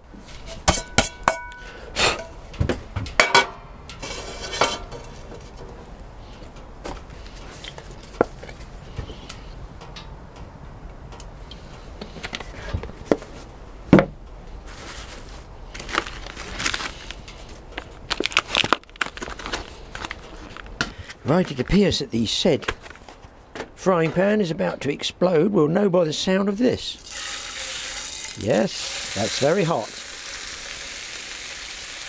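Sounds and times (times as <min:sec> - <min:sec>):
frying pan knocking and clanking: 0:00.7 - 0:01.6, 0:02.6 - 0:03.6.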